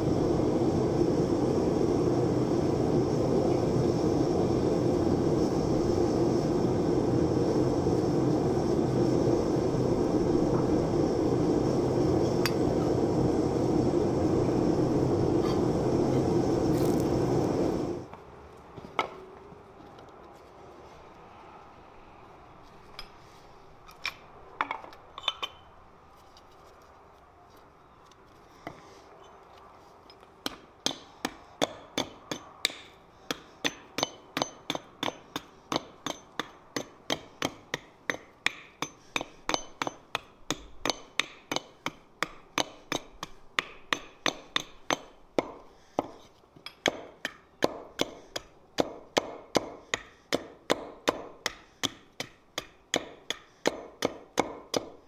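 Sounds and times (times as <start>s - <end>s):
hatchet chopping wooden stick: 30.4s - 55.0s.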